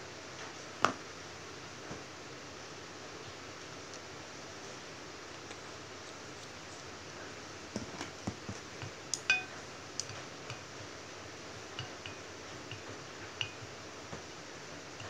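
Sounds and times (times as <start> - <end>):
chopsticks clinking on a ceramic plate: 9.2 - 9.6.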